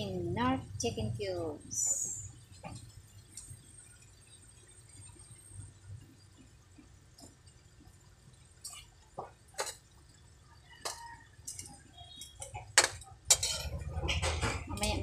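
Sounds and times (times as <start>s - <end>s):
metal ladle scraping a wok: 12.8s - 14.4s.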